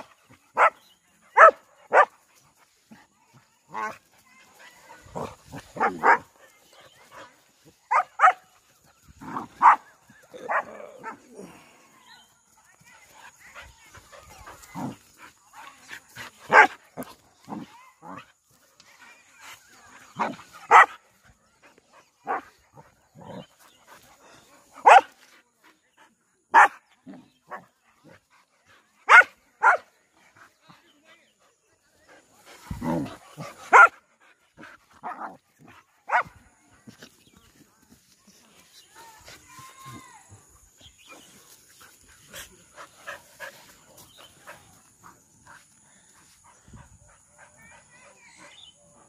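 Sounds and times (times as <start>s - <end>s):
dogs barking: 1.4s - 2.2s, 5.0s - 6.4s, 7.9s - 8.5s, 9.2s - 11.3s, 14.0s - 18.2s, 20.1s - 21.0s, 24.7s - 25.2s, 26.5s - 26.8s, 29.0s - 29.9s, 32.8s - 34.0s, 36.1s - 36.4s
dogs scuffling and grumbling: 13.0s - 20.8s, 32.2s - 33.9s.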